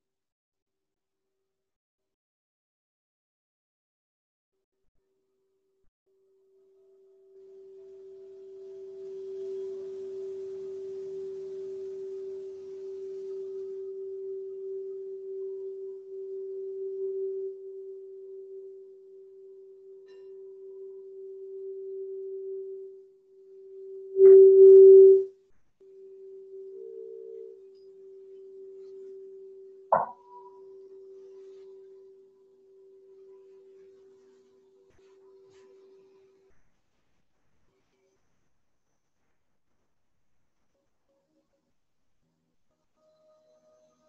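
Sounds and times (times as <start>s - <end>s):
singing bowl ringing tone: 7.7s - 25.3s, 25.9s - 34.5s.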